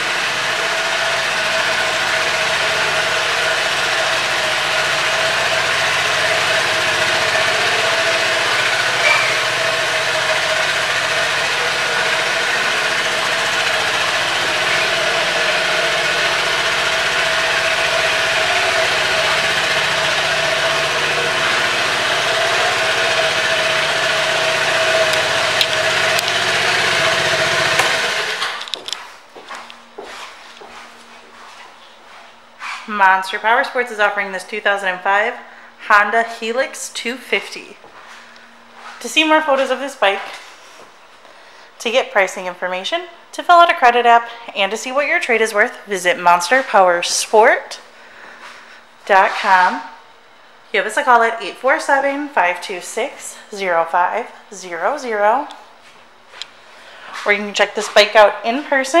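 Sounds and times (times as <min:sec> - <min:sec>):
scooter engine idling: 0:00.0 - 0:28.6.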